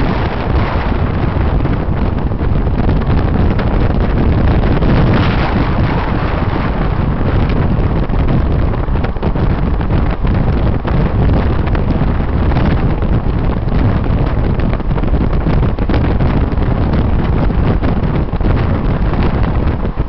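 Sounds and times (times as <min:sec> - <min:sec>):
car engine and tyre noise: 0:00.0 - 0:20.0
wind buffeting microphone: 0:00.0 - 0:20.0.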